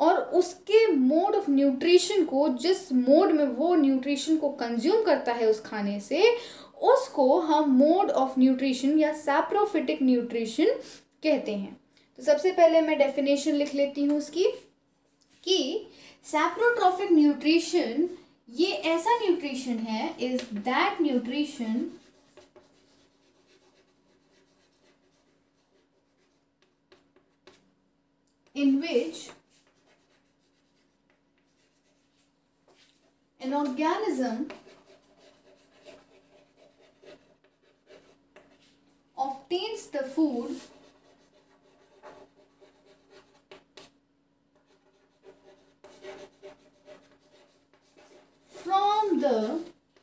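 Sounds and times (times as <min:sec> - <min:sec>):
faint steady hum: 0:00.0 - 0:50.0
pen scratching while writing: 0:22.0 - 0:27.6, 0:29.4 - 0:32.1, 0:34.5 - 0:38.7, 0:40.5 - 0:43.9, 0:44.6 - 0:48.5.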